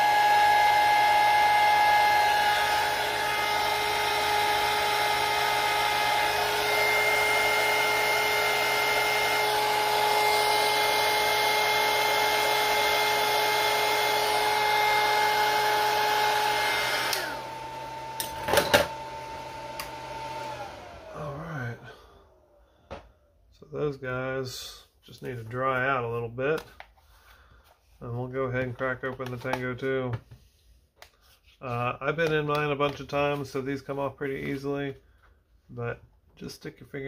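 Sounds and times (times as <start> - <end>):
heat gun blowing with fan whine: 0.0 - 22.6.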